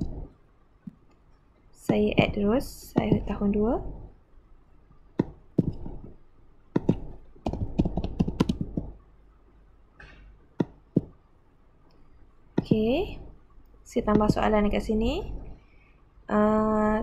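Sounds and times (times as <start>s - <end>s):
keyboard typing: 1.9s - 3.4s, 5.2s - 9.0s, 10.6s - 11.2s, 12.6s - 13.0s, 14.0s - 14.8s.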